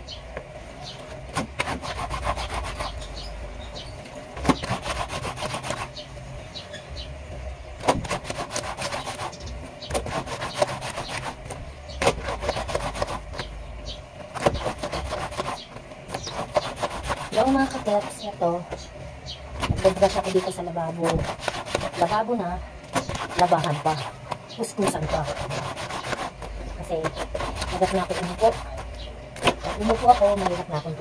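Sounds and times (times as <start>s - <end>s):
brush scrubbing wet laundry: 1.4s - 3.1s, 4.4s - 6.0s, 8.0s - 13.5s, 14.4s - 18.4s, 19.6s - 22.3s, 23.0s - 31.0s.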